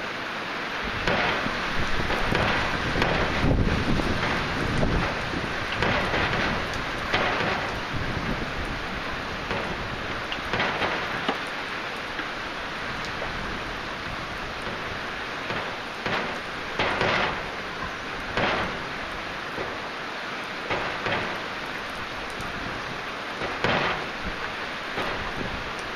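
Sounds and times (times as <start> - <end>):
heavy rain hissing: 0.0 - 25.9.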